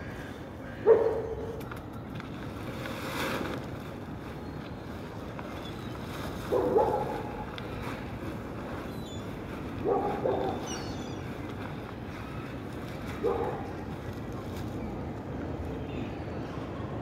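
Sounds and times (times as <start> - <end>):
dog barking: 0.8 - 1.5, 6.5 - 7.4, 9.8 - 10.7, 13.2 - 13.7.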